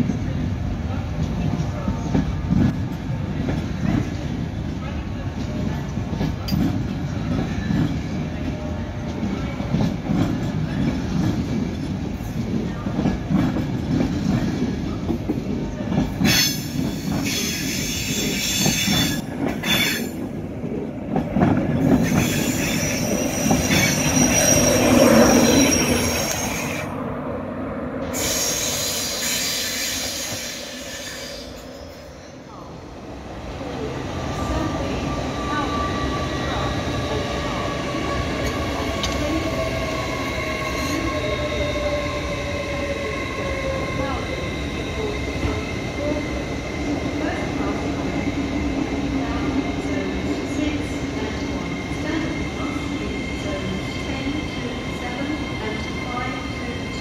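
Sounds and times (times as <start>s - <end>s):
train wheels rumbling on rails: 0.0s - 57.0s
wheel squeal: 22.0s - 26.9s.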